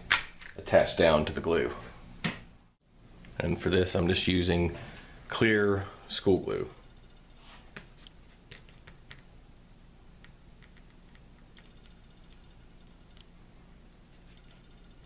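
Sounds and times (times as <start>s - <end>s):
low room hum: 0.0s - 15.0s.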